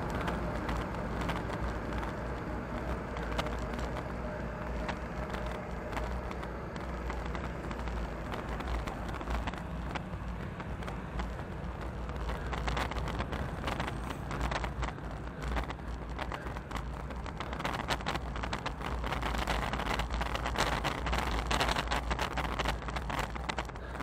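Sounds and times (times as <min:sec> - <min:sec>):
road and traffic rumble: 0:00.0 - 0:24.0
wind buffeting microphone: 0:00.0 - 0:24.0.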